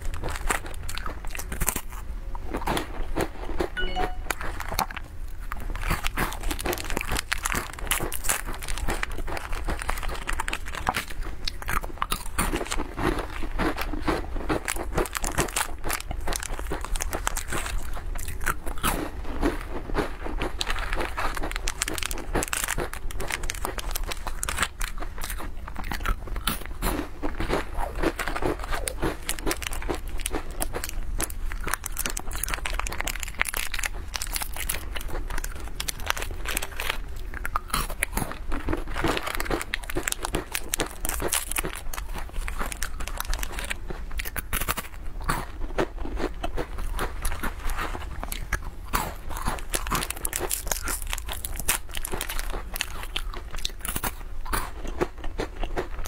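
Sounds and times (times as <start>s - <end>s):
chewing crisp biscuits: 0.0s - 56.0s
plastic wrappers crinkling: 5.8s - 11.1s, 14.6s - 18.0s, 20.5s - 25.5s, 27.9s - 44.8s, 49.3s - 54.2s.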